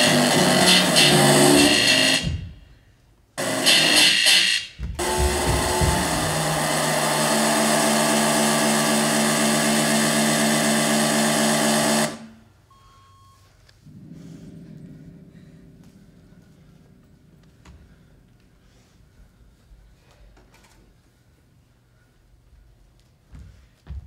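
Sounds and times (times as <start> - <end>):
low held electronic tones: 12.6 - 16.8.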